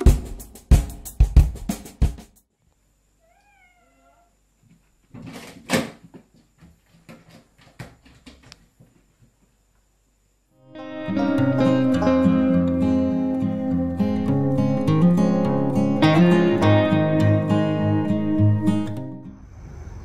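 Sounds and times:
drum-heavy music: 0:00.0 - 0:02.4
cat meowing faintly: 0:03.2 - 0:04.4.

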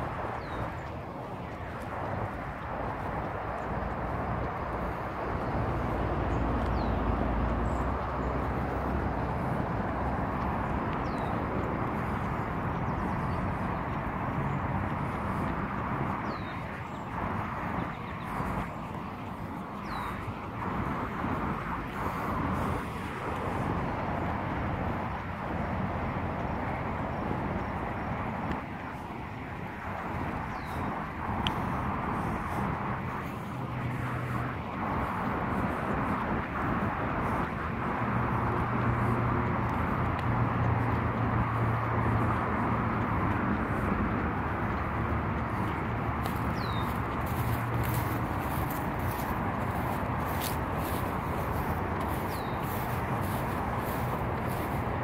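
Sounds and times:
distant outdoor roar: 0:00.0 - 0:55.0.

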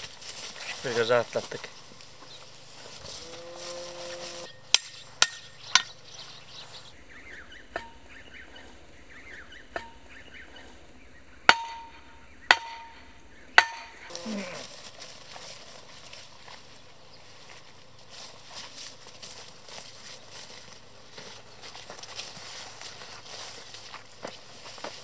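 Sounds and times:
hammer hitting metal stake: 0:04.7 - 0:06.0, 0:07.7 - 0:08.0, 0:09.7 - 0:10.0, 0:11.5 - 0:14.1.

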